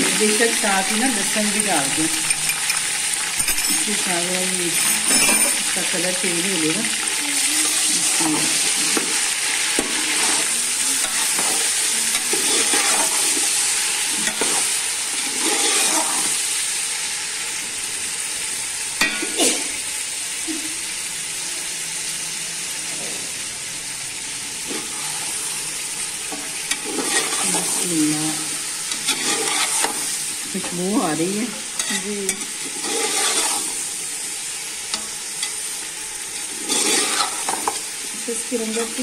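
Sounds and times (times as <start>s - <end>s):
chicken sizzling in oil: 0.0s - 39.0s
metal spoon scraping a pot: 4.7s - 5.7s, 9.8s - 13.4s, 14.2s - 16.4s, 26.3s - 27.8s, 28.8s - 30.8s, 31.8s - 33.9s, 36.3s - 37.8s.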